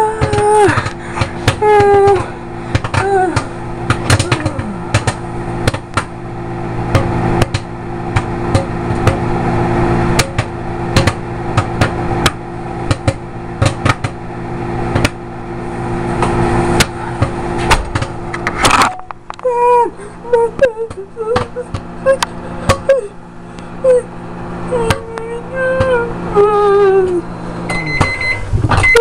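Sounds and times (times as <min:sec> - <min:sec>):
popcorn popping: 0:00.0 - 0:06.2, 0:06.8 - 0:09.4, 0:10.1 - 0:14.3
microwave oven humming: 0:00.0 - 0:29.0.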